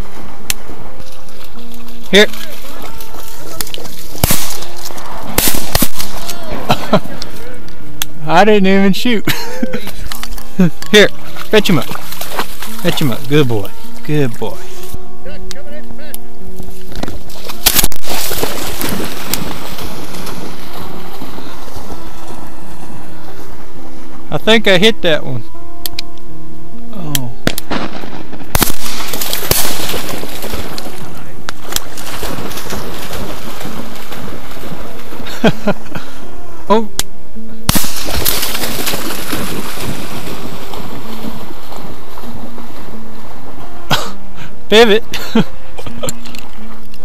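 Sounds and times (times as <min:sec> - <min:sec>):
shotgun shots: 0:04.1 - 0:07.0, 0:17.6 - 0:21.1, 0:27.4 - 0:34.3, 0:37.7 - 0:41.8.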